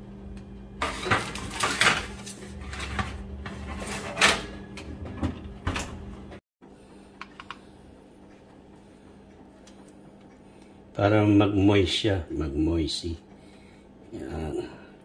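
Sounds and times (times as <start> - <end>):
metal sheet pan scraping: 0.8 - 4.5
oven door shutting: 0.8 - 6.2.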